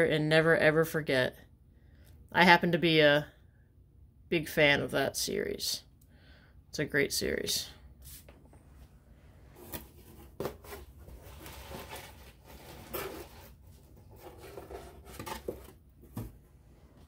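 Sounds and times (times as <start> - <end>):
paper and packaging rustling: 9.6 - 16.4.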